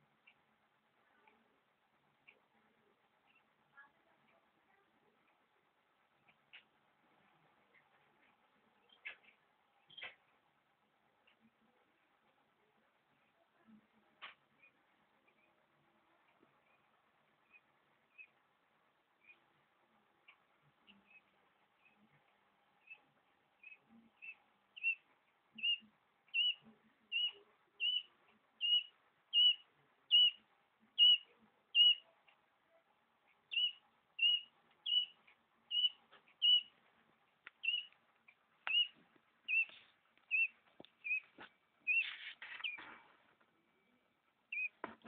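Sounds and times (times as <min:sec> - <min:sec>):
quail chicks peeping: 0:08.8 - 0:10.2, 0:16.3 - 0:19.6, 0:20.2 - 0:43.5, 0:44.4 - 0:45.0
rustling: 0:36.0 - 0:43.6.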